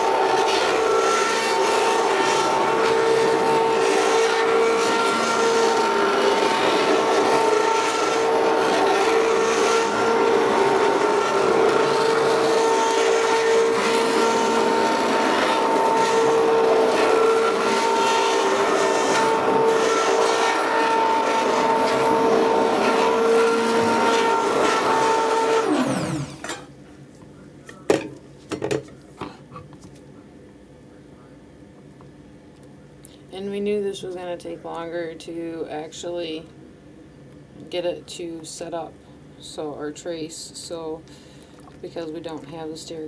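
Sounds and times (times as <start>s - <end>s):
stick blender running: 0.0s - 26.6s.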